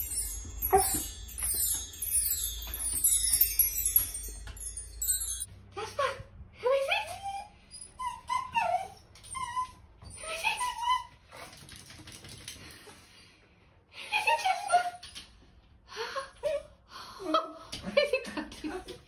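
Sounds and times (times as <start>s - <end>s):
small dog whining and yelping: 0.4s - 1.8s, 6.8s - 11.5s.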